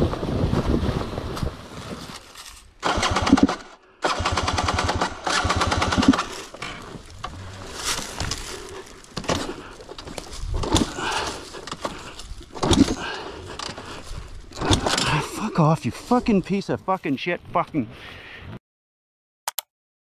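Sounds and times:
dirt bike engine popping: 2.8s - 7.4s.

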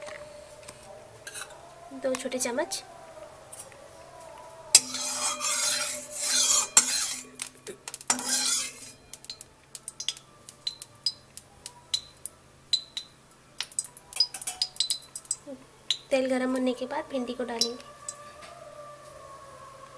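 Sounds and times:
metal utensil scraping a pan: 1.2s - 1.6s, 4.7s - 9.4s
sharp metallic clinks: 11.9s - 16.1s.

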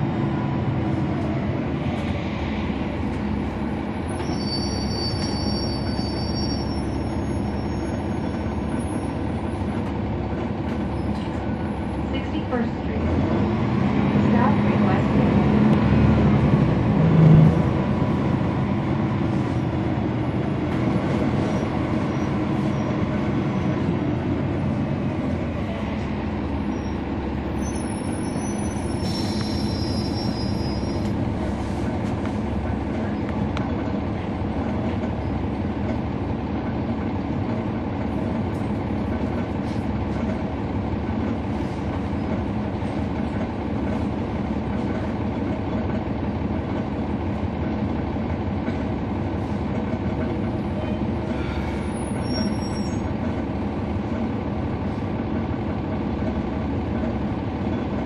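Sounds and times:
bus diesel engine running: 0.0s - 58.0s
road rumble: 0.0s - 58.0s
high-pitched squeal: 4.1s - 8.2s, 27.6s - 31.2s.

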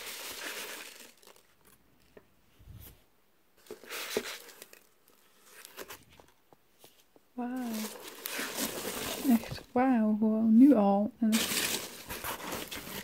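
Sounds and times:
packing peanuts rustling in box: 0.0s - 1.8s, 3.6s - 6.3s, 7.4s - 9.8s, 11.3s - 13.0s.

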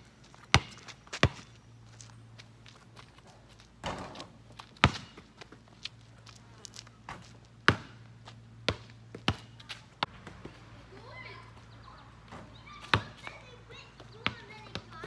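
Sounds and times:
basketball bouncing on concrete: 0.4s - 1.5s, 3.8s - 5.8s, 7.1s - 10.8s, 12.2s - 15.0s.

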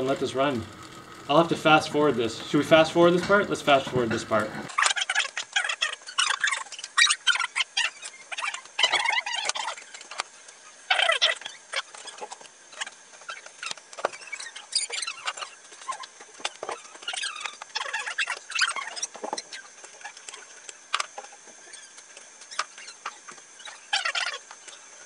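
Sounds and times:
high-pitched chirps and squeaks: 4.7s - 10.2s, 10.9s - 16.1s, 16.7s - 20.5s, 21.6s - 24.8s.

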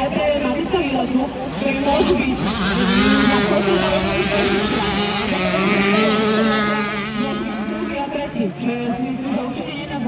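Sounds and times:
motocross bikes engines revving: 0.6s - 8.6s.

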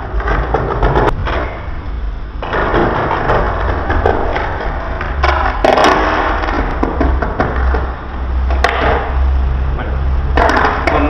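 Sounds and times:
skateboard rolling and scraping: 0.0s - 11.0s
steady low rumble: 0.0s - 11.0s
skateboard knocks: 2.4s - 7.9s, 10.4s - 11.0s.

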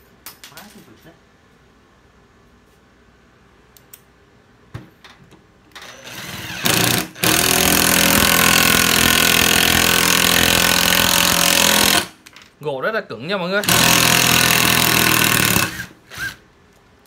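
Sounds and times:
cordless drill whining: 5.7s - 12.1s, 13.6s - 16.4s.

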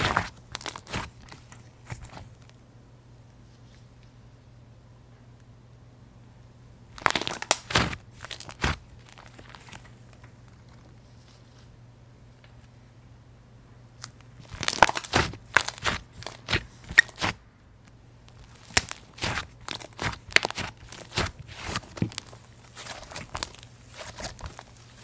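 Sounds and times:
slime crackling and popping: 0.0s - 2.3s, 7.0s - 9.8s, 14.0s - 17.4s, 18.2s - 25.0s
slime tearing sounds: 0.0s - 2.4s, 7.0s - 9.8s, 14.0s - 17.4s, 18.2s - 25.0s.

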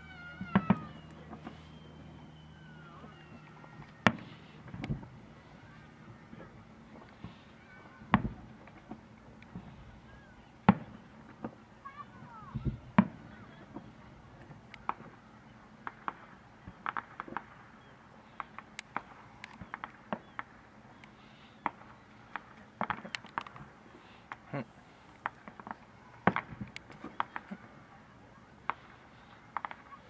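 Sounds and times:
fireworks bangs: 0.0s - 15.2s, 25.2s - 28.0s, 28.6s - 30.0s
fireworks popping and crackling: 6.9s - 9.8s, 15.8s - 27.9s, 28.6s - 30.0s.

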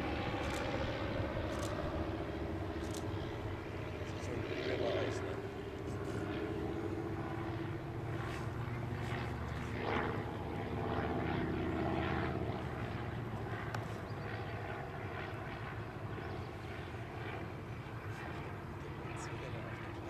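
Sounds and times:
propeller plane engine droning: 0.0s - 20.0s.

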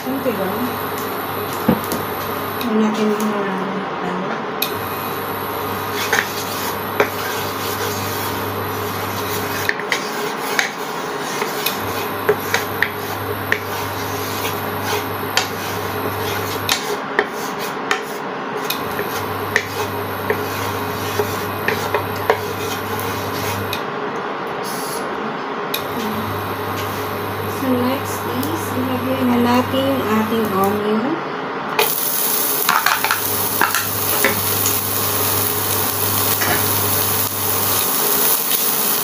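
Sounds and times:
wooden spatula scraping frying pan: 5.8s - 18.2s, 18.8s - 23.7s.

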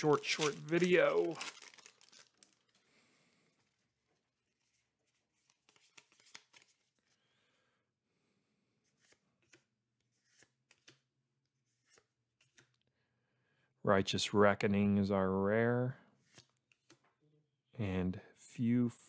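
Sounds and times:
trading cards flipped by hand: 0.0s - 2.0s, 4.5s - 7.2s, 8.8s - 12.8s, 16.2s - 17.1s.

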